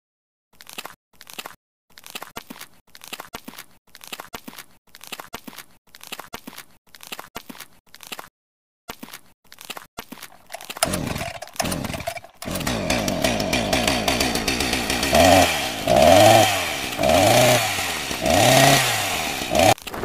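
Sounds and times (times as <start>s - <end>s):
chainsaw engine revving: 10.3s - 20.0s.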